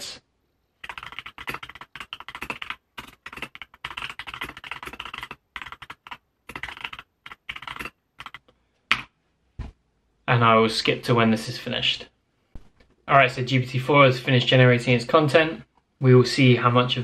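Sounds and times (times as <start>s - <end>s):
typing on computer keyboard: 0.8s - 8.5s.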